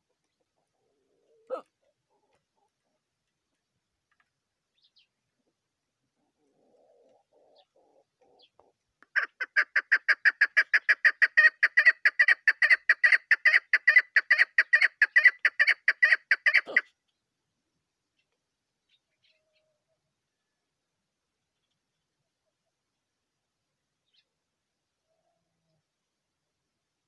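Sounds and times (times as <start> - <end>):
partridge clucking call: 6.4 - 16.9.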